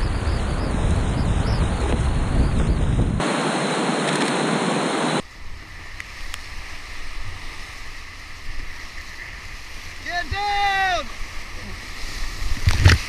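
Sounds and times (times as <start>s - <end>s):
river rapids rushing: 3.2s - 5.2s.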